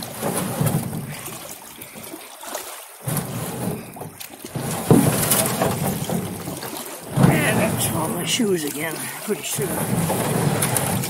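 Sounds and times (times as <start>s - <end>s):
water splashing around canoe: 0.0s - 11.0s
sharp knocks on canoe: 3.1s - 8.1s.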